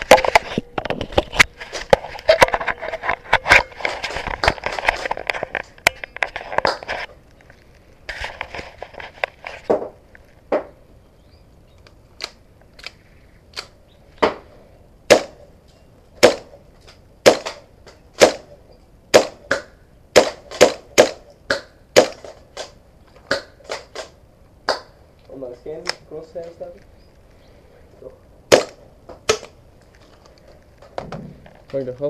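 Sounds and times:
airsoft pistol shots: 0:15.1 - 0:15.4, 0:16.2 - 0:16.5, 0:17.2 - 0:17.6, 0:18.2 - 0:18.5, 0:19.1 - 0:22.3, 0:28.5 - 0:29.5.

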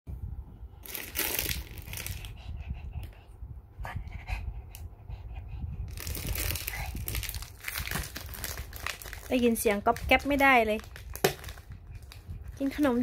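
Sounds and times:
plastic snack bag crinkling: 0:00.8 - 0:02.2, 0:05.9 - 0:12.9
dog panting: 0:02.1 - 0:07.0.

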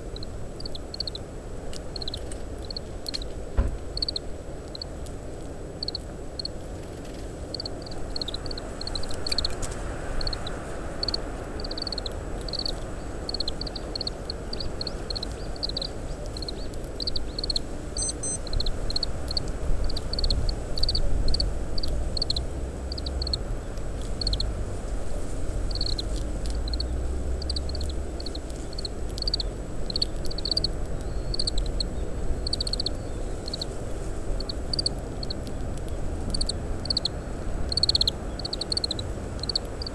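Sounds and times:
wind rumble on microphone: 0:00.0 - 0:39.9
greenfinch call notes: 0:07.5 - 0:24.5, 0:25.7 - 0:33.8, 0:36.3 - 0:39.9.

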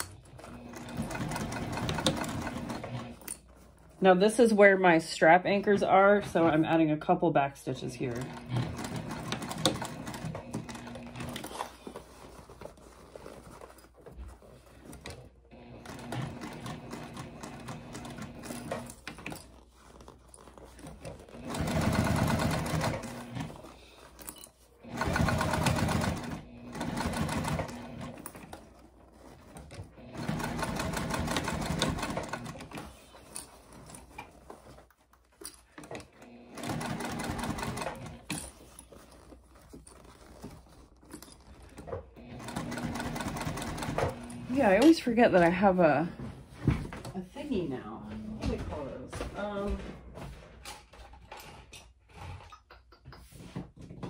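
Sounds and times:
sewing machine stitching: 0:00.0 - 0:04.7, 0:07.8 - 0:46.0.

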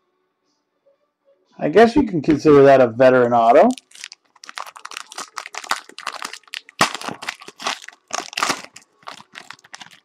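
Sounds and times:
foil wrapper crinkling: 0:03.5 - 0:10.0.

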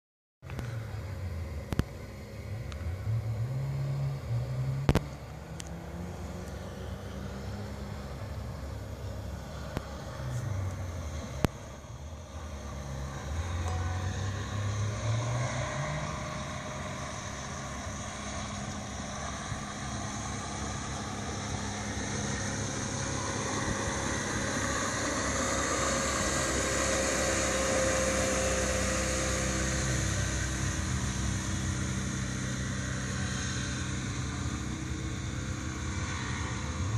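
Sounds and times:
outboard motor running: 0:16.3 - 0:36.6.

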